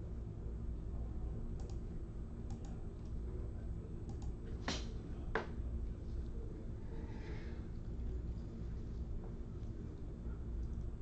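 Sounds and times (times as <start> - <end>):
low electrical hum: 0.0 - 11.0
sharp clicks: 4.1 - 4.4.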